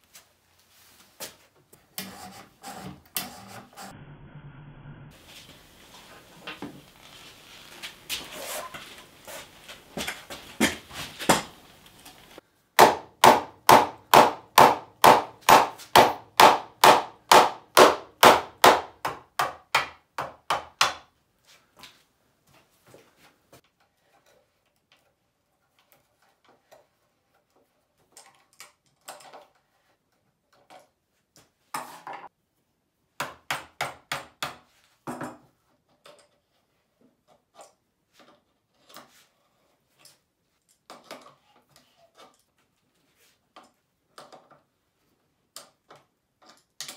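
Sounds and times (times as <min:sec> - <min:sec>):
hammer striking wood: 0:12.8 - 0:21.1
tools tapping and clicking: 0:45.5 - 0:46.9.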